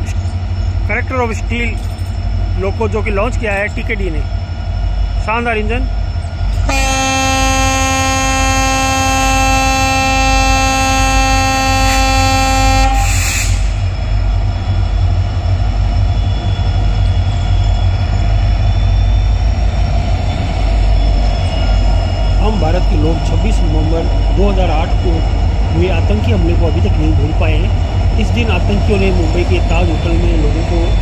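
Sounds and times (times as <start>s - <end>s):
train rumbling past: 0.0s - 31.0s
diesel locomotive horn blast: 6.6s - 13.9s.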